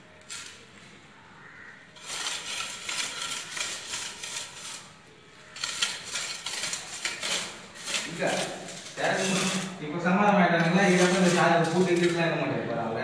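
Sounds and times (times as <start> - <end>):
scraping wet cement mortar: 2.0 - 9.8, 10.5 - 12.2.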